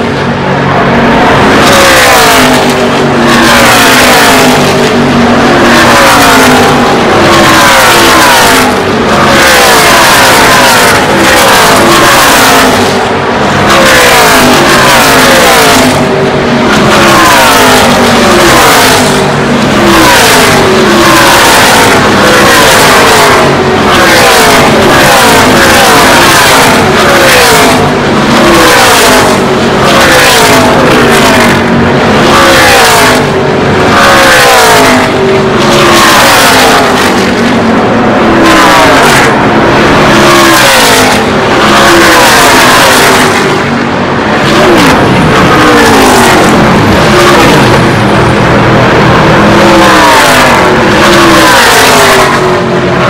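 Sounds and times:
race trucks passing at full throttle: 0:00.0 - 0:53.0.

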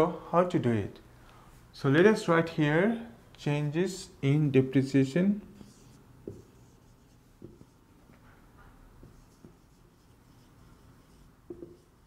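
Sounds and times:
marker tapping on whiteboard: 0:06.2 - 0:06.6, 0:07.4 - 0:07.8, 0:11.4 - 0:11.9.

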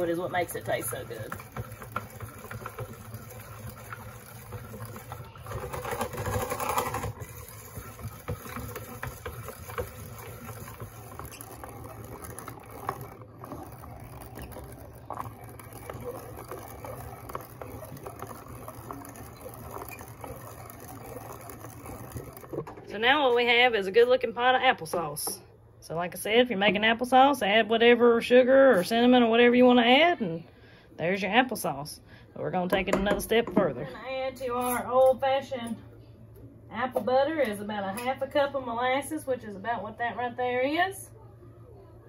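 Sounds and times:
food mill scraping and squishing: 0:00.0 - 0:25.1
low steady hum: 0:00.0 - 0:42.0.

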